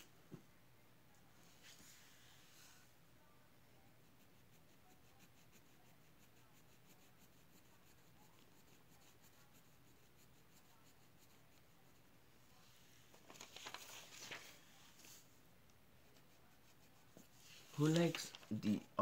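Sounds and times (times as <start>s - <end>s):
pen scratching on paper: 3.9s - 12.1s.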